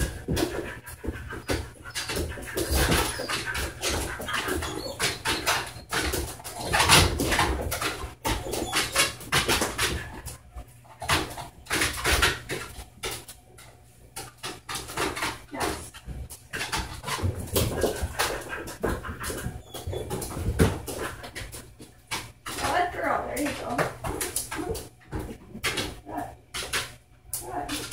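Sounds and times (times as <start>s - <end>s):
dog panting: 0.0s - 10.4s, 15.8s - 22.0s.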